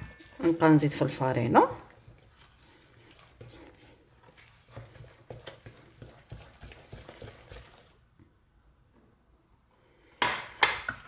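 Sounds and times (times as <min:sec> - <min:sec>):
wooden spoon knocking and scraping: 0:00.0 - 0:01.2, 0:03.1 - 0:07.7.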